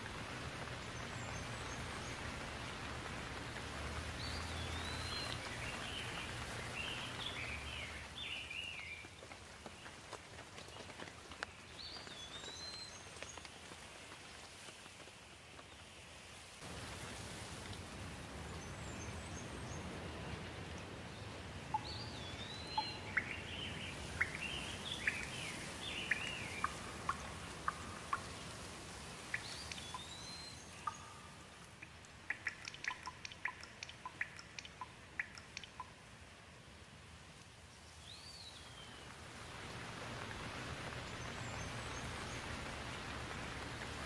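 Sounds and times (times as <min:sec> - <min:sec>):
steady rainfall hiss: 0:00.0 - 0:44.0
bird chirps: 0:21.7 - 0:28.0, 0:29.3 - 0:35.9
bird calling: 0:21.7 - 0:28.3.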